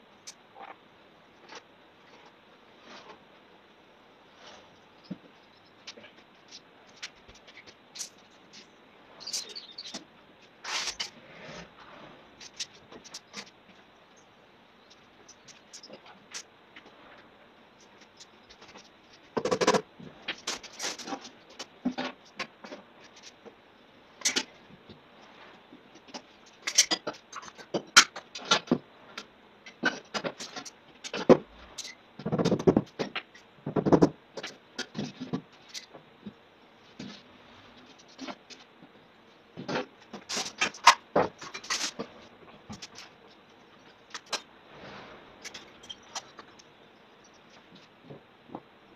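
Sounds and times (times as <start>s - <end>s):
plaster blocks knocking and scraping: 32.2s - 36.0s.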